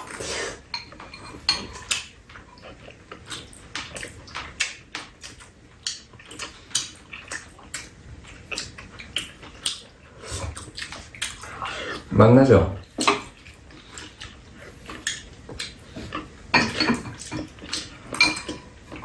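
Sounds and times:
wet chewing: 0:00.0 - 0:12.1, 0:12.8 - 0:19.0
metal spoons scraping bowls: 0:00.7 - 0:02.0, 0:16.6 - 0:19.0.

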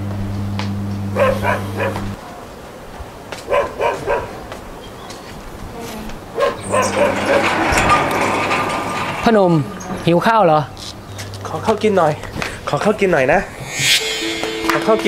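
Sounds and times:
dog barking: 0:01.2 - 0:02.2, 0:03.5 - 0:04.5, 0:06.4 - 0:07.4.

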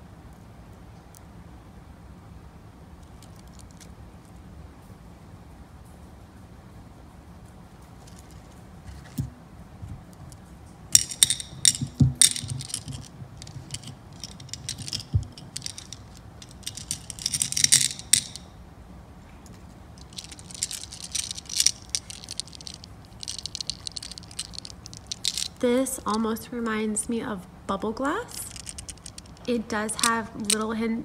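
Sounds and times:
glass beads rattling in plastic box: 0:10.9 - 0:18.5, 0:20.0 - 0:26.4, 0:28.4 - 0:30.8.

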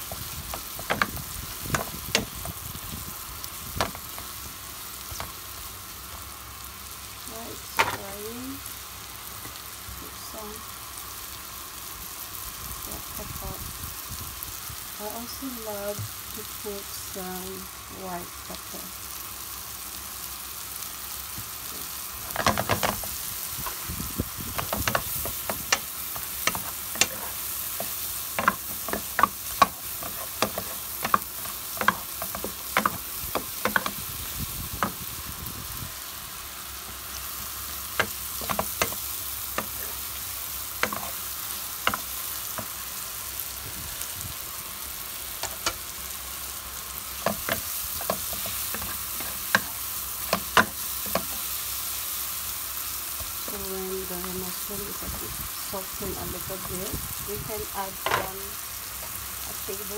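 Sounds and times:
mushrooms sizzling in a frying pan: 0:00.0 - 0:59.9
wooden spatula scraping a pan: 0:24.5 - 0:34.0.

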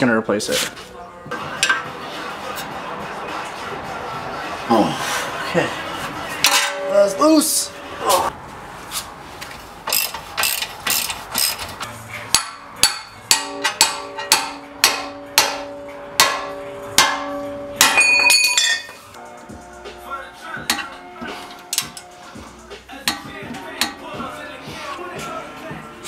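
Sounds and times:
hammer striking steel: 0:06.4 - 0:07.4, 0:12.3 - 0:19.0, 0:23.0 - 0:24.0.

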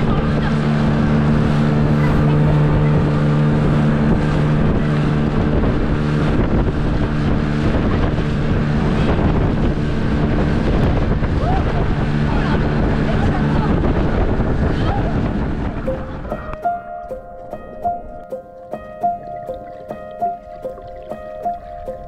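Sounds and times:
outboard motor humming: 0:00.0 - 0:22.0
wind buffeting microphone: 0:00.0 - 0:22.0.

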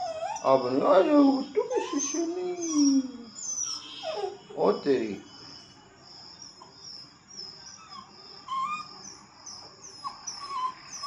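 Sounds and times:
puppies whimpering: 0:00.0 - 0:05.8, 0:07.4 - 0:11.0.

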